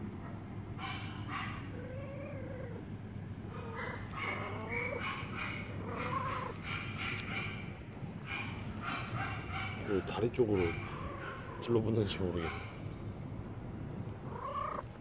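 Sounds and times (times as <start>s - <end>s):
steady low hum: 0.0s - 15.0s
cat meowing: 5.8s - 6.6s, 14.2s - 14.9s.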